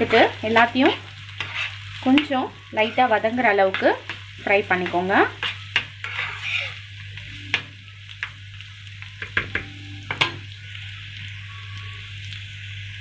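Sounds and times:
spatula stirring in pan: 0:00.0 - 0:08.4
onions sizzling in oil: 0:00.0 - 0:13.0.

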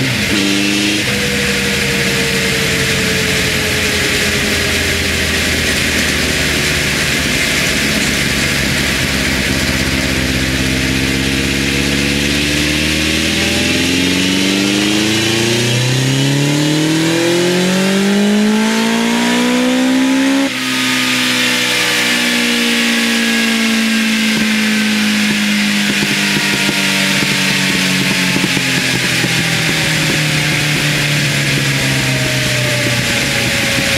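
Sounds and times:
wheel spinning on roller: 0:00.0 - 0:15.8
motorcycle engine revving: 0:00.0 - 0:33.9.

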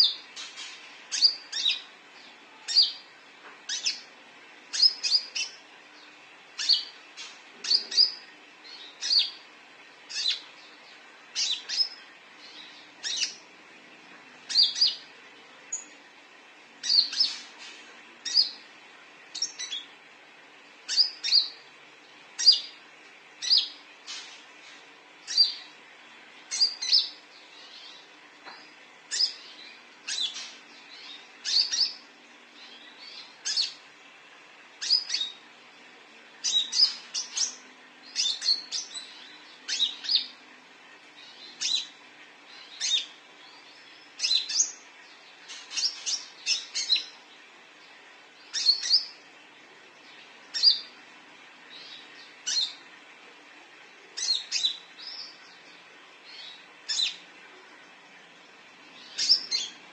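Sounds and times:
bird chirping: 0:00.0 - 0:09.5, 0:10.1 - 0:16.0, 0:16.8 - 0:18.7, 0:19.3 - 0:19.9, 0:20.8 - 0:21.7, 0:22.4 - 0:22.8, 0:23.4 - 0:25.8, 0:26.5 - 0:33.9, 0:34.8 - 0:35.4, 0:36.4 - 0:40.4, 0:41.1 - 0:49.2, 0:50.0 - 0:51.0, 0:51.7 - 0:52.9, 0:54.1 - 0:57.2, 0:58.9 - 0:59.9.

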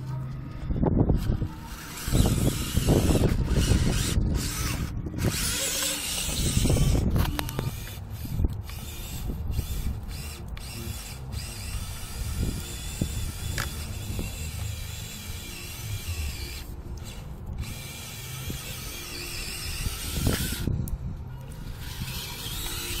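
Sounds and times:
small electric motor whining: 0:00.0 - 0:23.0.

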